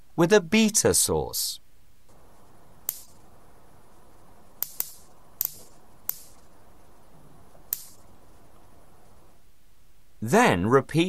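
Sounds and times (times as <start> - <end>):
sharp spark snaps: 2.1 - 3.5, 4.4 - 6.8, 7.5 - 8.2.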